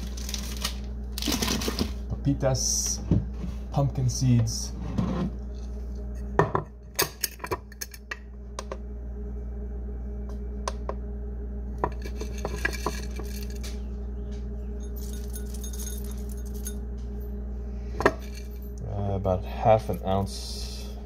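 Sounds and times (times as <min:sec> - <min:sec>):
glass jar clinking: 0:11.8 - 0:13.6, 0:14.8 - 0:16.8.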